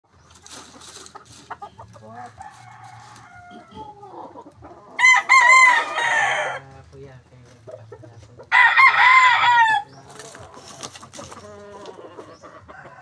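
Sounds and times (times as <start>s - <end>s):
rooster crowing: 2.3s - 4.0s, 5.0s - 6.6s, 8.5s - 9.9s, 12.6s - 13.0s
faint fowl calls: 7.4s - 13.0s.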